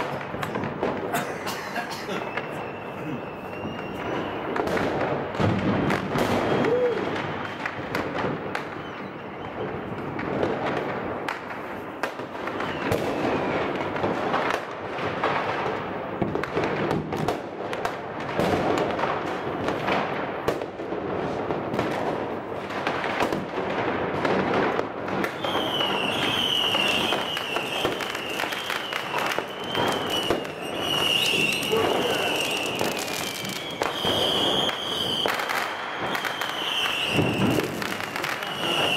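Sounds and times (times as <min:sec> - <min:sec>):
fireworks and firecrackers banging: 0:00.0 - 0:38.9
high wavering whistle: 0:02.2 - 0:04.6.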